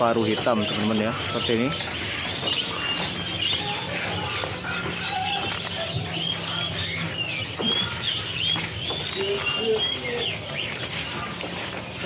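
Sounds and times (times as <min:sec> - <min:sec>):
songbirds chirping and whistling: 0:00.0 - 0:12.0.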